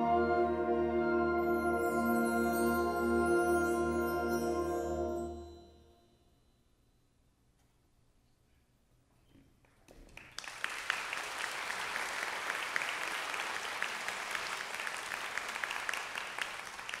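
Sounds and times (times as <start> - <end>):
audience applause: 10.1 - 17.0.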